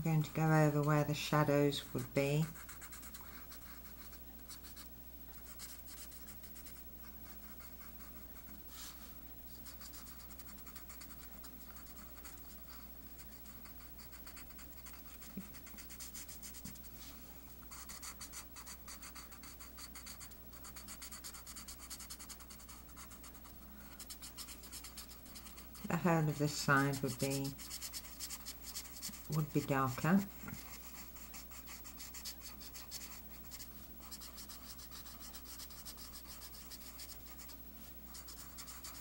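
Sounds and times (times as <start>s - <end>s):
marker scratching on paper: 0.1s - 16.9s, 17.7s - 39.0s.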